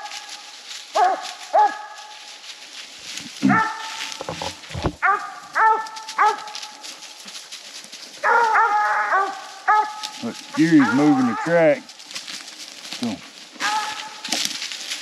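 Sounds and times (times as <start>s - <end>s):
hounds barking: 0.0s - 2.3s, 3.4s - 4.3s, 5.0s - 7.3s, 8.1s - 11.9s, 13.6s - 14.5s.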